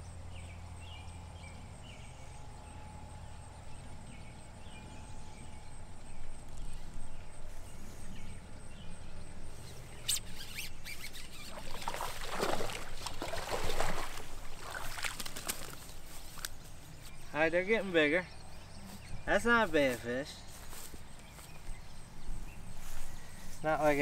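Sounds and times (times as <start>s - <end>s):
fish splashing in water: 11.5s - 16.1s.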